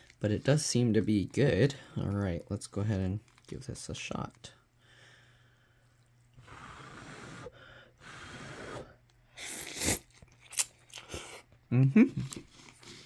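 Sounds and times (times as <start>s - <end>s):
person slurping noodles: 5.9s - 10.2s.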